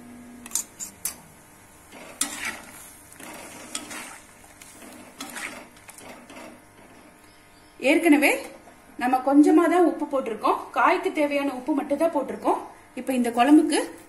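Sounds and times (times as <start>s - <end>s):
ladle scraping metal pan: 2.0s - 6.5s.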